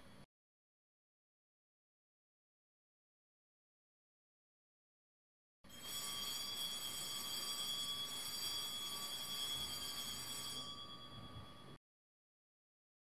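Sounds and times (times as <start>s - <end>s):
high-pitched ringing tone: 5.7s - 11.8s.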